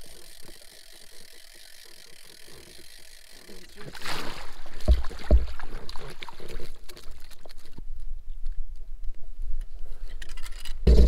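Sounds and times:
water splashing: 0:03.6 - 0:07.8.

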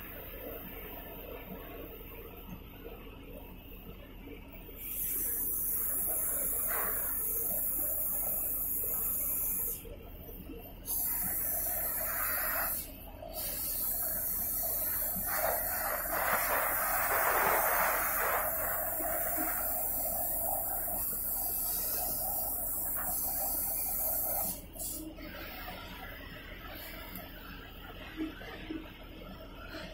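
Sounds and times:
cutting torch hissing: 0:10.9 - 0:25.0.

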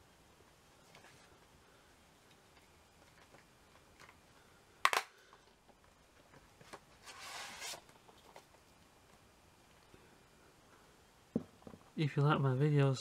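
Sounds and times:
scraping rustle: 0:06.6 - 0:08.5.

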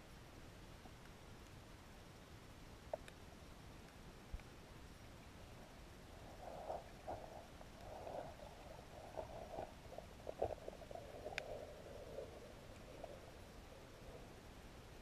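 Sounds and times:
muffled underwater crackles and bumps: 0:06.1 - 0:14.2.

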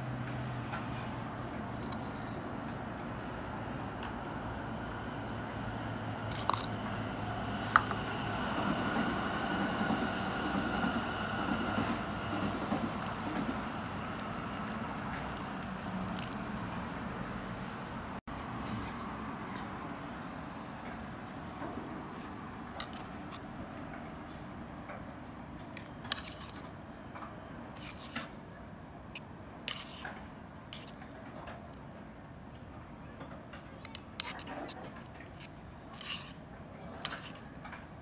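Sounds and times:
city traffic hum: 0:00.0 - 0:38.0
hot water poured into bowl: 0:12.0 - 0:16.6.

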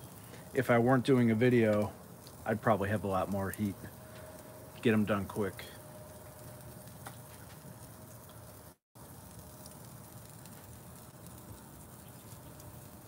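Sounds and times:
meat sizzling on grill: 0:00.0 - 0:13.0
small crackles: 0:00.0 - 0:13.0.

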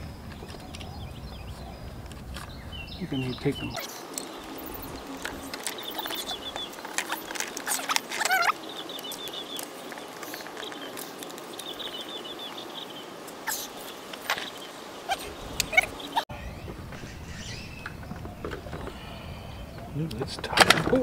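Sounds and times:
bird trilling: 0:00.4 - 0:20.0
bird call sliding down: 0:03.8 - 0:11.8.

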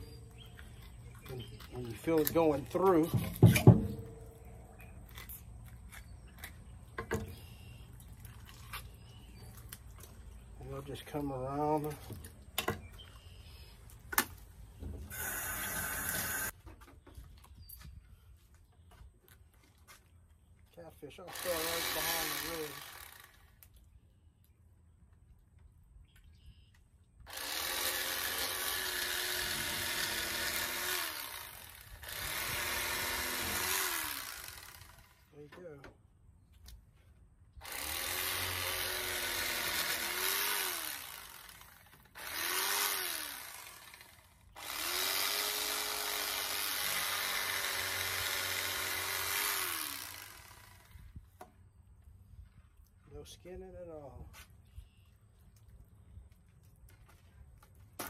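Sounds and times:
electric fillet knife running: 0:15.1 - 0:16.5, 0:21.3 - 0:23.4, 0:27.3 - 0:35.2, 0:37.6 - 0:50.9.

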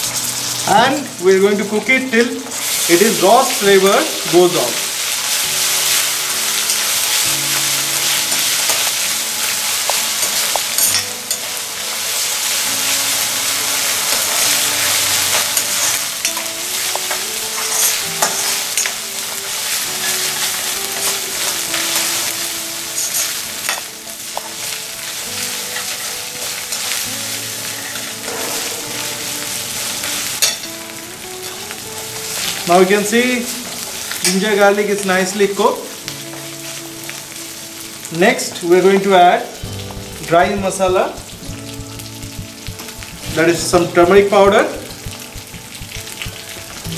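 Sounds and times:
onions sizzling in hot oil: 0:00.0 - 0:46.9
ladle stirring and scraping: 0:39.7 - 0:46.9.

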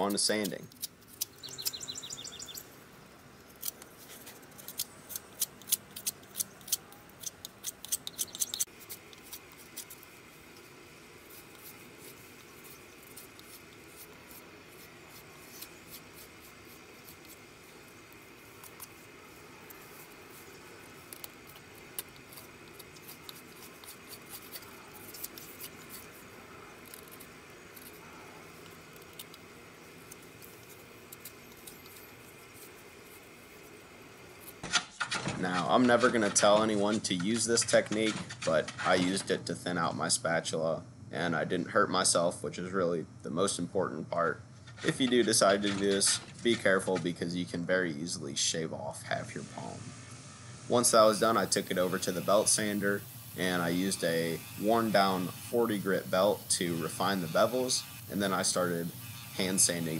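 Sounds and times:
knife shaving wood: 0:00.0 - 0:02.6, 0:03.2 - 0:34.7, 0:51.0 - 0:59.9.

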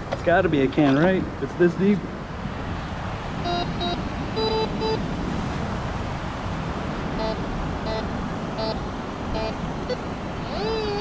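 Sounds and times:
metal detector beeps: 0:03.4 - 0:05.0, 0:07.2 - 0:11.0.

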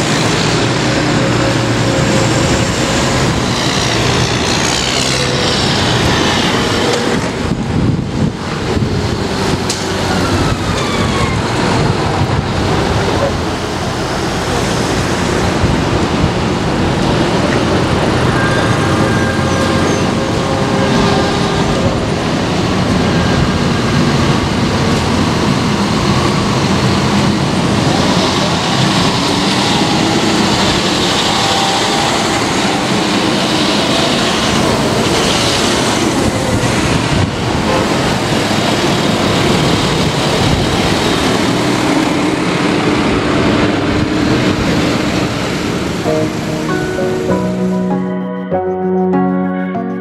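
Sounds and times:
tractor diesel engine passing: 0:00.0 - 0:08.0, 0:08.6 - 0:49.0.

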